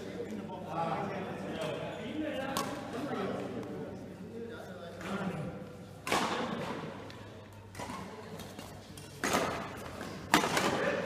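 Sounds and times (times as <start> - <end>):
racket smacking shuttlecock: 6.0 - 6.8, 9.0 - 10.9.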